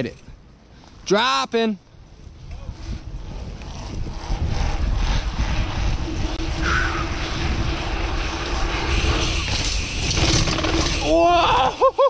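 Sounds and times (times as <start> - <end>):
wind buffeting microphone: 1.9 - 11.6
bike tyres rumbling on bricks: 7.8 - 11.5.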